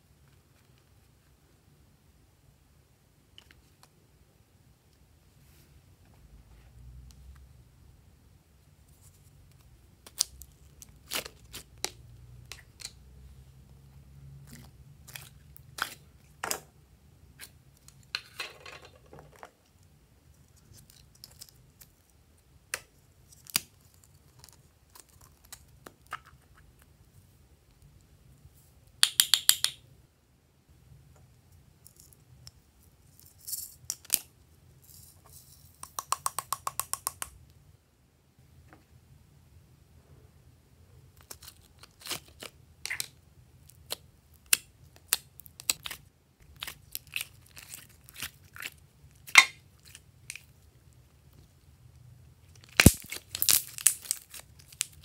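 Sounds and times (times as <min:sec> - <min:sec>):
plastic containers clicking and tapping: 0:35.8 - 0:37.3.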